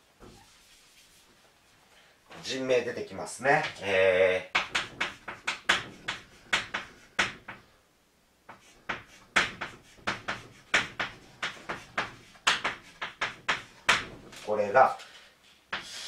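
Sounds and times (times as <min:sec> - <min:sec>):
chalk tapping and scraping on blackboard: 0:03.5 - 0:07.7, 0:08.5 - 0:14.6, 0:15.5 - 0:16.0.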